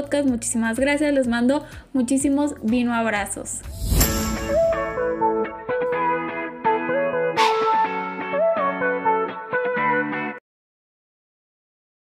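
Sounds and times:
plucked guitar-like melody: 0:04.7 - 0:10.4.

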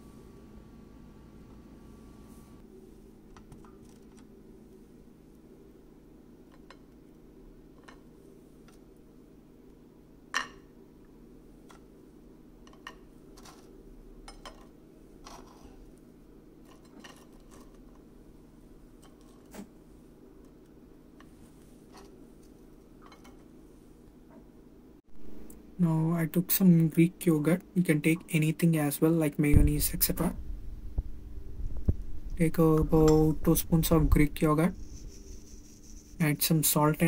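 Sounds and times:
steady low hum: 0:00.0 - 0:37.0.

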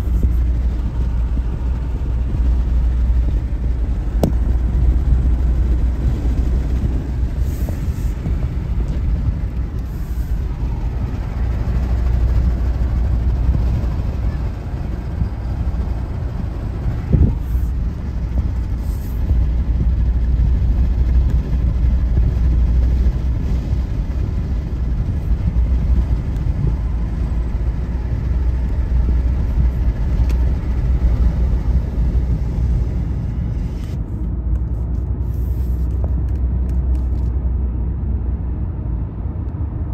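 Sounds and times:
car road and engine rumble: 0:00.0 - 0:39.9
short thump: 0:04.2 - 0:04.5.

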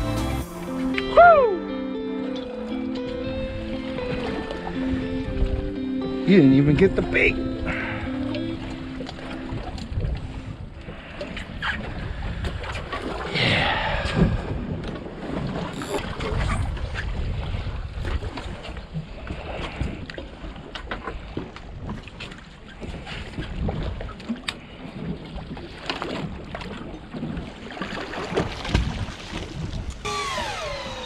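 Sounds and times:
wind buffeting microphone: 0:06.8 - 0:24.3.

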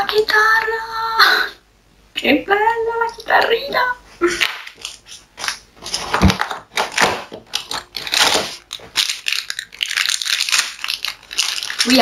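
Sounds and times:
plastic packet crinkling: 0:04.4 - 0:12.0.

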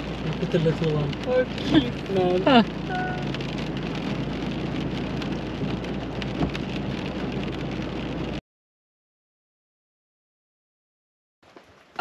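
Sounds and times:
engine humming: 0:00.0 - 0:08.4
rain on a vehicle roof: 0:00.0 - 0:08.4, 0:11.4 - 0:12.0.

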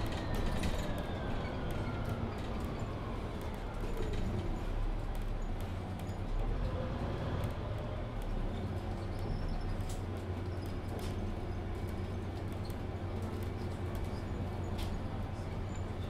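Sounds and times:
bus diesel engine idling: 0:08.6 - 0:16.0.

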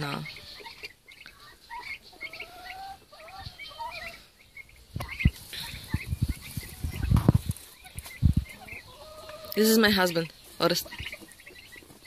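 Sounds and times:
small birds chirping: 0:00.0 - 0:12.0
wavering bird calls: 0:00.0 - 0:12.0
dull low thumps: 0:04.9 - 0:08.6.

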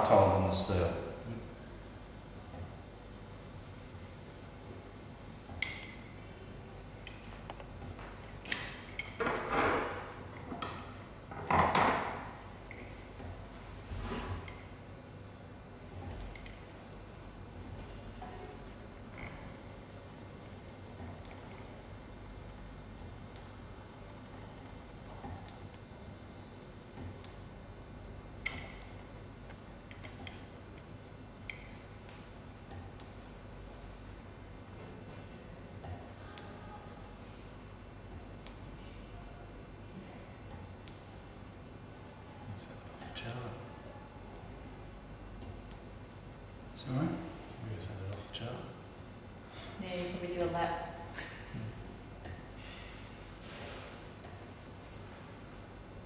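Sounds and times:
faint low hum: 0:00.0 - 0:56.0
small metallic clicks and pings: 0:28.4 - 0:29.0, 0:31.4 - 0:31.8.

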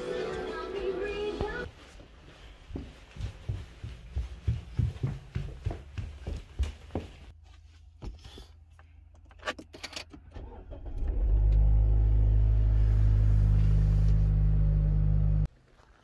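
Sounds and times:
car engine starting and idling: 0:10.0 - 0:15.5.

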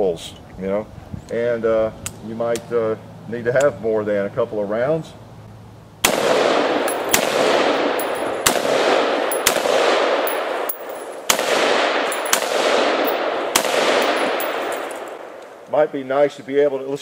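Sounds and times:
rifle shots with echo: 0:06.0 - 0:15.4.

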